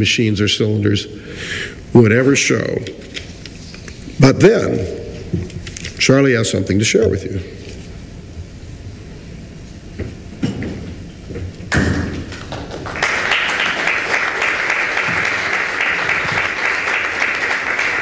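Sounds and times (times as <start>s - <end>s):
audience applause: 12.4s - 18.0s.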